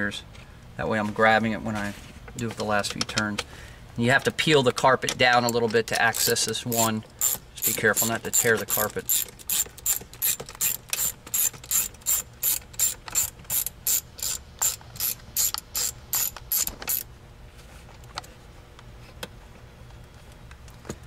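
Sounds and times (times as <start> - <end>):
hand ratchet clicking: 5.2 - 17.1.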